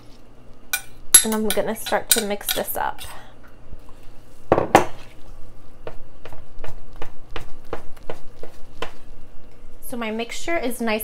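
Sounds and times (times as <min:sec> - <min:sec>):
clinks against metal bowl: 0:00.7 - 0:02.8.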